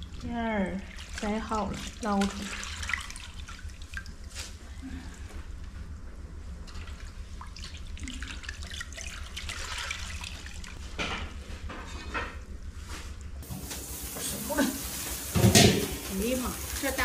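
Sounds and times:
water sloshing and dripping in a basin: 0:00.0 - 0:17.0
wet clumps dropping onto metal tray: 0:15.3 - 0:16.2.

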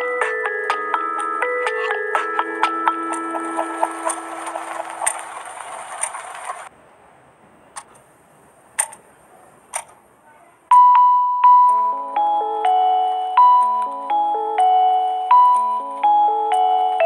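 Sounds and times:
bell-like mallet music: 0:00.0 - 0:05.1, 0:10.7 - 0:17.0
lofi background music: 0:00.0 - 0:05.2
clock ticking: 0:00.0 - 0:06.3, 0:10.7 - 0:17.0.

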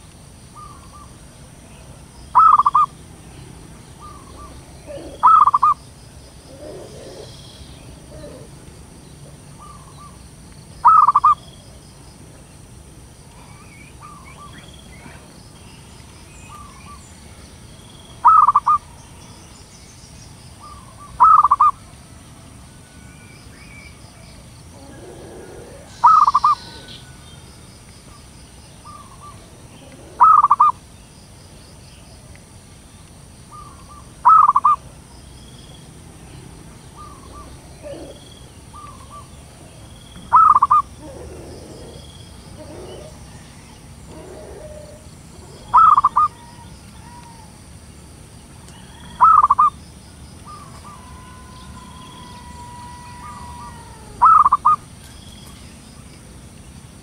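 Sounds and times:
dove cooing: 0:00.6 - 0:02.9, 0:04.0 - 0:05.8, 0:06.4 - 0:10.2, 0:10.8 - 0:11.4, 0:18.2 - 0:18.8, 0:20.6 - 0:21.8, 0:24.7 - 0:27.2, 0:28.8 - 0:30.8, 0:33.5 - 0:34.8, 0:36.9 - 0:47.6, 0:48.8 - 0:49.7, 0:50.4 - 0:54.8.

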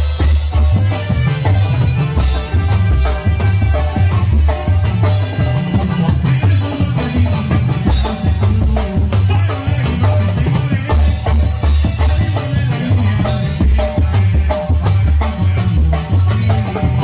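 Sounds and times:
horns playing: 0:00.0 - 0:08.5
drum beat: 0:00.0 - 0:17.0
keyboard melody: 0:00.0 - 0:17.0
pulsing bass: 0:00.0 - 0:17.0.

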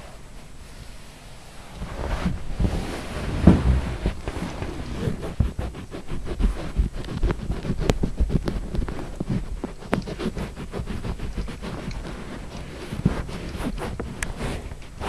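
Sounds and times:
blanket rustling: 0:00.0 - 0:15.0
soft knocks: 0:03.3 - 0:04.6.

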